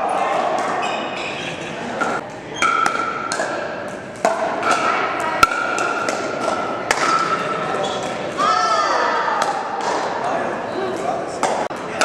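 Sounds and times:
paddles hitting plastic ball: 0:02.2 - 0:07.3.

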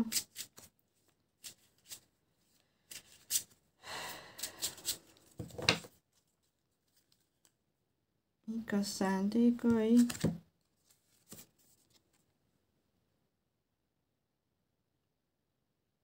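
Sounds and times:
cards shuffling: 0:00.0 - 0:07.5, 0:09.7 - 0:12.2.

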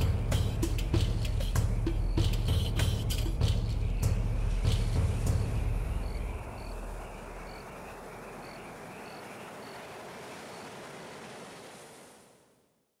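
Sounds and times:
insect-like chirps: 0:00.0 - 0:09.8.

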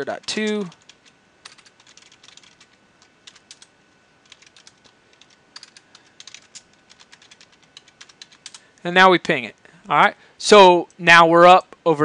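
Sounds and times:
computer keyboard typing: 0:00.0 - 0:08.7.

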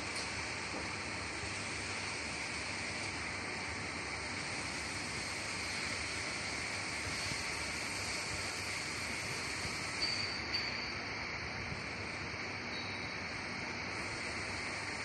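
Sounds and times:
high hiss: 0:00.0 - 0:15.0
faint tone: 0:12.7 - 0:13.2.

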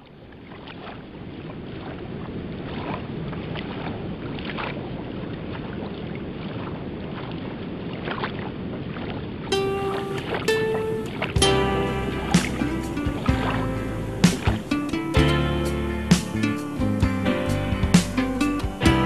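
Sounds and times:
small waves lapping on sand: 0:00.0 - 0:18.1
wind on microphone: 0:01.2 - 0:19.0
music: 0:09.5 - 0:19.0.

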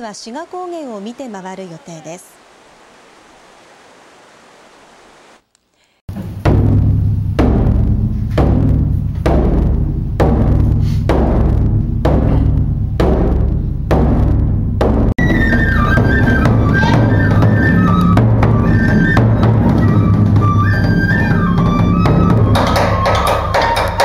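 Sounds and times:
large drum beats: 0:06.1 - 0:24.0
flute melody: 0:15.2 - 0:24.0.

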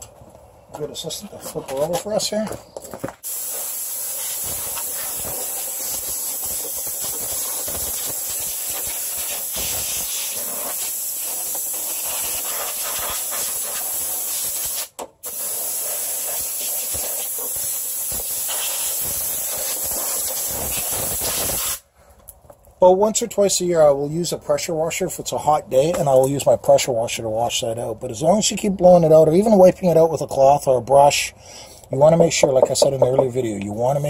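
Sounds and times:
compressed air blow gun hissing: 0:03.2 - 0:21.8.

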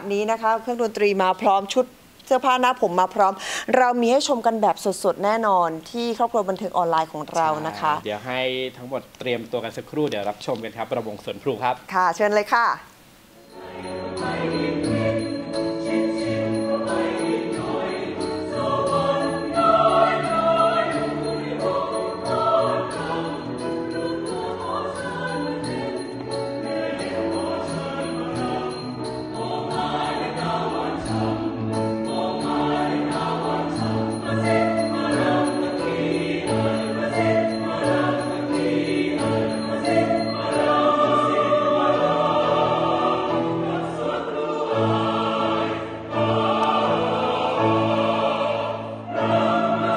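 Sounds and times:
mixed choir singing: 0:13.4 - 0:49.9.

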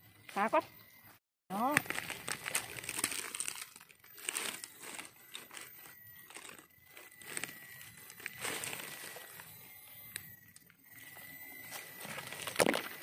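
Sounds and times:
dry leaves rustling and crackling: 0:01.8 - 0:09.4, 0:11.7 - 0:12.9.

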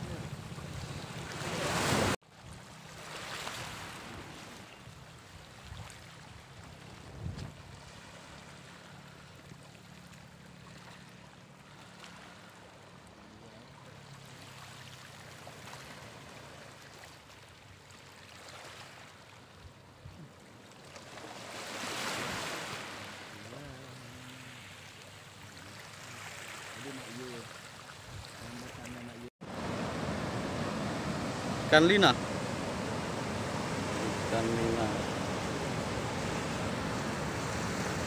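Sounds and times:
waves washing against rocks: 0:00.0 - 0:02.2, 0:29.4 - 0:38.0.

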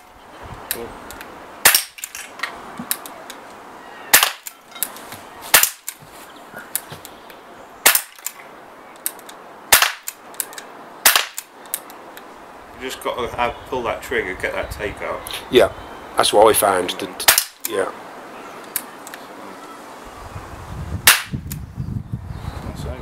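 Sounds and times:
air pistol shots: 0:01.6 - 0:02.2, 0:04.1 - 0:04.5, 0:05.5 - 0:06.0, 0:07.8 - 0:08.4, 0:09.7 - 0:10.2, 0:11.0 - 0:11.5, 0:17.2 - 0:17.7, 0:21.0 - 0:21.5.

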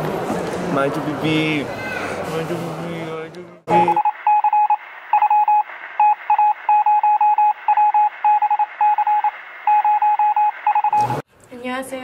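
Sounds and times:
electronic beeps over phone line: 0:03.7 - 0:11.2.

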